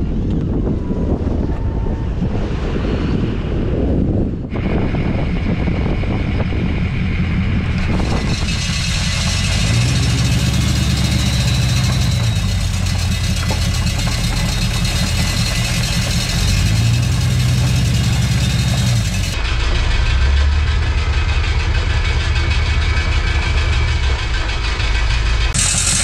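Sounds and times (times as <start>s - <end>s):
diesel engine running: 0.0s - 26.0s
salt spreader hissing: 7.8s - 19.4s, 25.6s - 26.0s.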